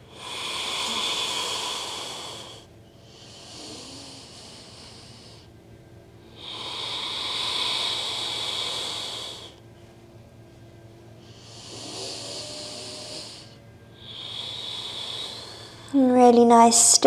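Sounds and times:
person breathing slowly: 0:00.0 - 0:05.6, 0:06.2 - 0:09.6, 0:11.2 - 0:16.0.

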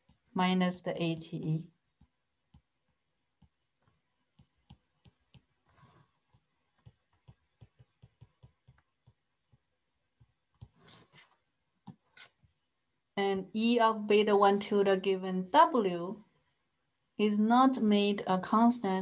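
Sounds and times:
stylus tapping on tablet screen: 0:01.9 - 0:12.5
soft rustle: 0:04.6 - 0:07.4, 0:10.5 - 0:12.5.

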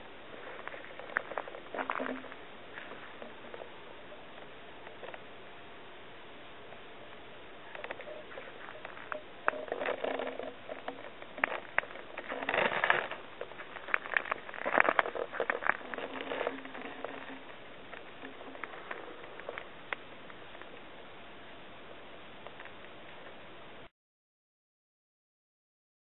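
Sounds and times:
footsteps on dry leaves and gravel: 0:11.4 - 0:19.7.

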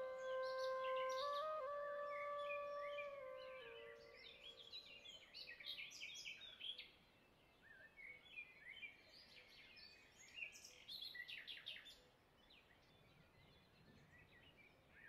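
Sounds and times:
outdoor background hiss: 0:00.0 - 0:08.7.

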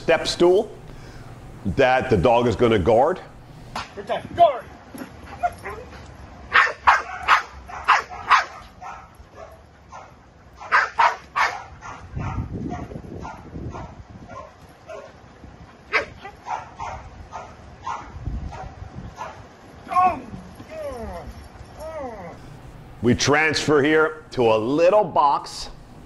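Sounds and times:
dog barking: 0:06.5 - 0:15.2, 0:15.9 - 0:19.4.

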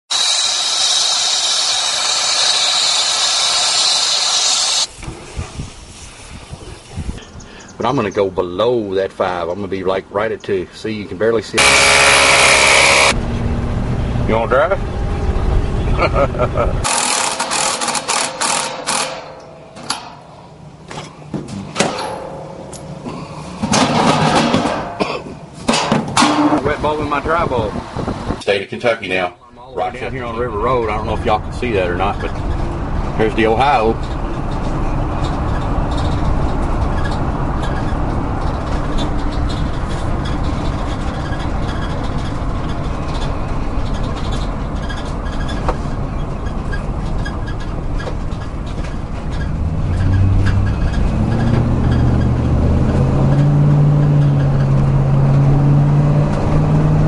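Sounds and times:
torch flame hissing: 0:00.2 - 0:06.6
metal scraping and rattling: 0:16.8 - 0:26.9, 0:31.1 - 0:55.0.

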